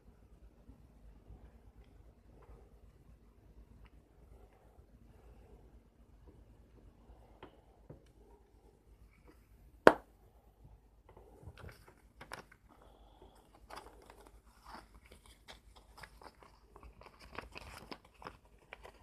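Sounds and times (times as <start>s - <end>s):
paper rustling and crinkling: 11.4s - 19.0s.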